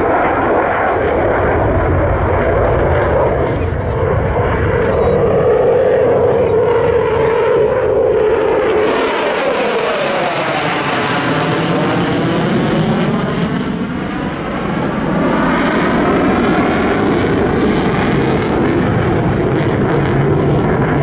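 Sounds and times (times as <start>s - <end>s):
jet engines on afterburner: 0.0s - 21.0s.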